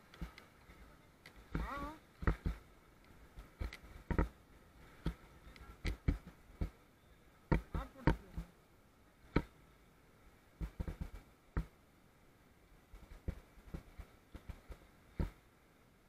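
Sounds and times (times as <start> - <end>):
camera handling knocks and bumps: 3.6 - 4.4, 10.6 - 11.7.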